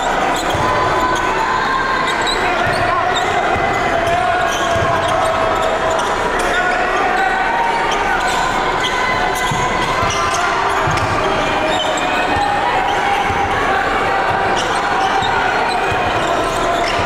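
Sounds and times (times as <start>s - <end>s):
crowd chatter: 0.0s - 17.0s.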